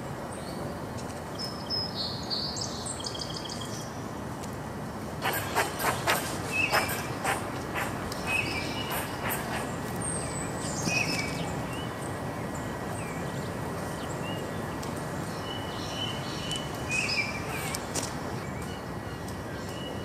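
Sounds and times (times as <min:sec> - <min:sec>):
outdoor background hiss: 0:00.0 - 0:20.0
songbirds chirping: 0:00.3 - 0:04.3, 0:05.2 - 0:20.0
high falling bird call: 0:05.2 - 0:11.4.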